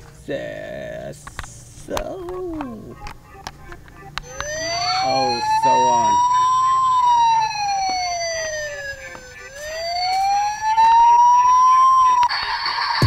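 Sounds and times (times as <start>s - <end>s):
toy siren wailing: 2.8s - 12.3s.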